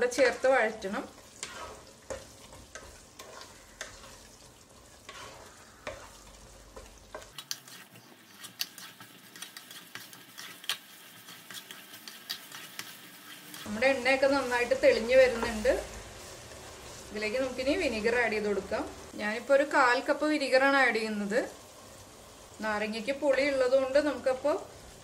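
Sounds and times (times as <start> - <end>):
masala sizzling in oil: 0.0 - 25.0
wooden spatula scraping pot: 0.1 - 15.8.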